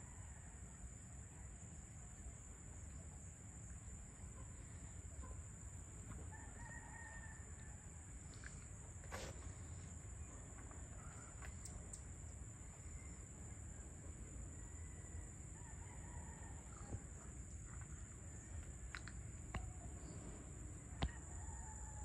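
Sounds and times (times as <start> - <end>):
low outdoor rumble: 0.0 - 22.0
distant rooster crowing: 6.1 - 8.2, 14.5 - 17.2, 20.8 - 22.0.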